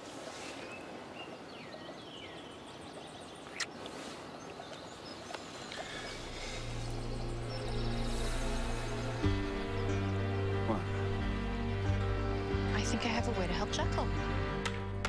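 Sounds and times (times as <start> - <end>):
birds chirping: 0.0 - 15.0
soft background music: 6.2 - 15.0.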